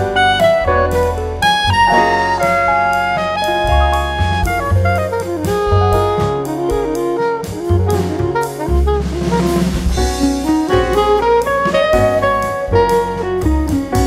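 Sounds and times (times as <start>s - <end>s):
jazz saxophone with drum kit: 0.0s - 14.0s.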